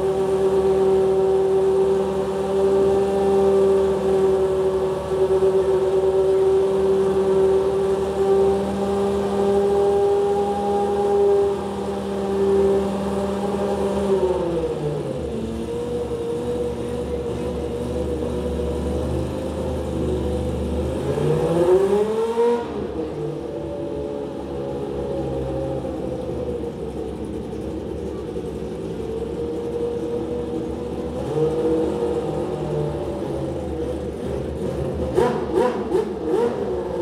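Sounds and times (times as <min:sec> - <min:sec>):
race car engine revving and idling: 0:00.0 - 0:37.0.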